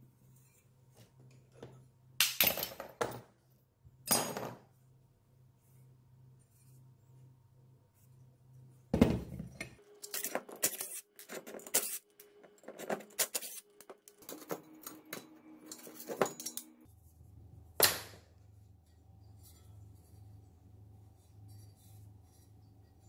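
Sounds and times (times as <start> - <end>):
metal parts clinking and knocking: 14.2 - 16.7.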